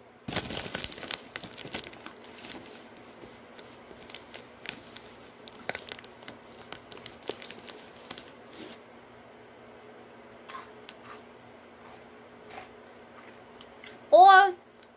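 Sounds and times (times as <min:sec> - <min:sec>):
snack bag crinkling: 0:00.3 - 0:08.8.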